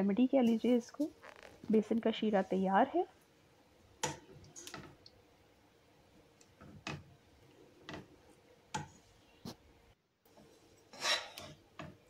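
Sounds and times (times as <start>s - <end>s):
spatula tapping pan: 4.0s - 4.9s, 8.7s - 9.0s.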